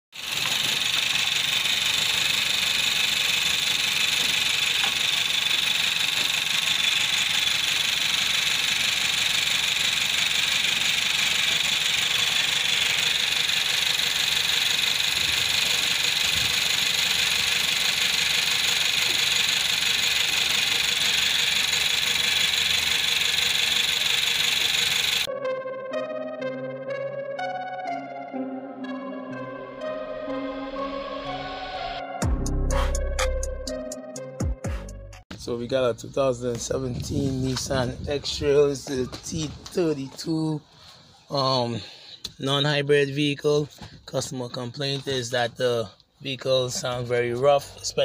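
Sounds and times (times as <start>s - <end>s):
car engine idling roughly: 0.1s - 25.3s.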